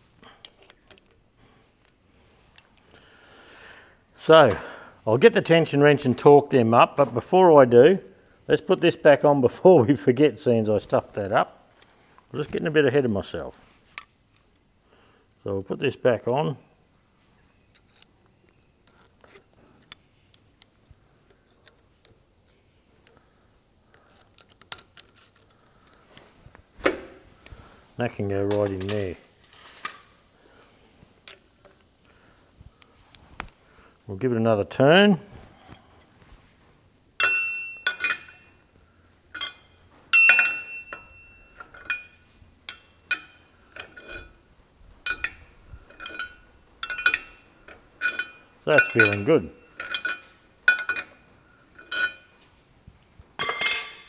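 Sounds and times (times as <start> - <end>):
metallic clinks and knocks: 37.2 - 38.6, 39.3 - 44.4, 45.0 - 52.4, 53.4 - 54.0.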